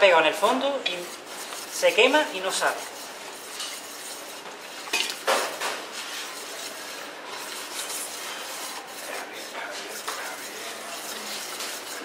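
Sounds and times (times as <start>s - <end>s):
metal utensil scraping bowl: 0.1s - 12.0s
utensil clanking against bowl: 3.4s - 5.9s.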